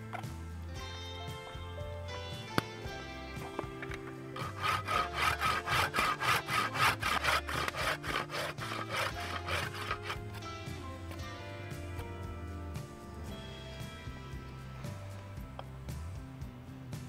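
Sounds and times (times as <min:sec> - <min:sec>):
hand saw cutting wood: 0:04.3 - 0:11.2.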